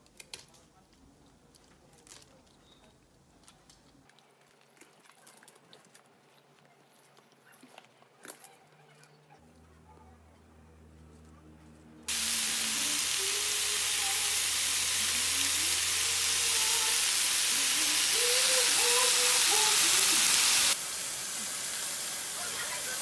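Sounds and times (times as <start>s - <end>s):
meat sizzling in a frying pan: 12.1s - 23.0s.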